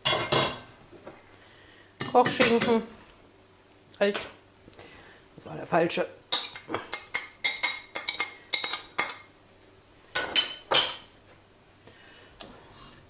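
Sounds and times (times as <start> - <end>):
cutlery and plate clinking on pot: 0.0 - 0.7, 6.3 - 9.3, 10.2 - 11.1.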